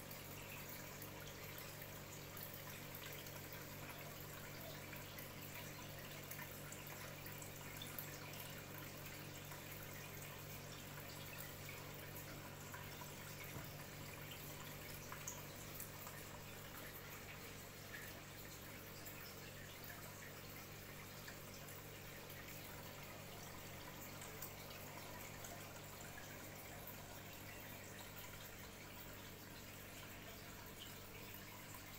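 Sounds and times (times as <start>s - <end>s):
low steady hum: 0.0s - 31.9s
water trickling and dripping: 0.0s - 31.9s.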